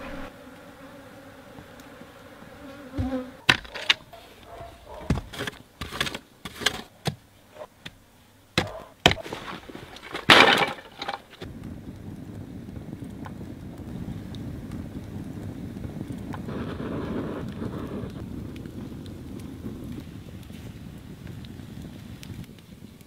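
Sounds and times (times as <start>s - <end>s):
insect buzzing: 0.0s - 5.0s
loud crunching knock: 3.0s - 4.1s, 8.6s - 11.5s.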